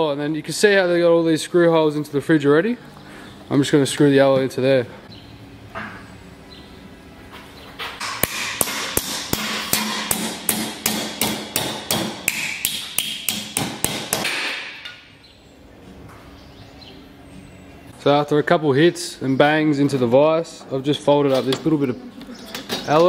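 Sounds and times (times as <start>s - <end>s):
hammer striking metal sheet: 7.9s - 15.0s.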